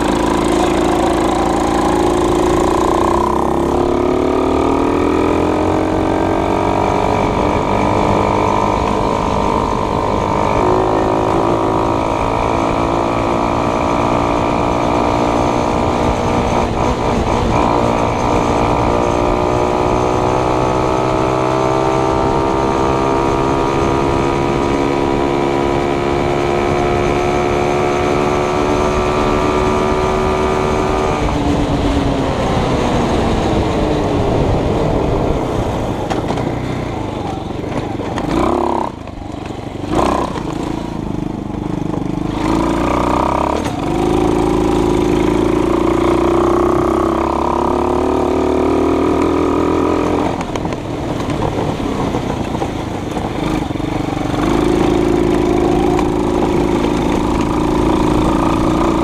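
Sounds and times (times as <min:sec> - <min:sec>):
vehicle engine running: 0:00.0 - 0:12.9, 0:50.2 - 0:59.0.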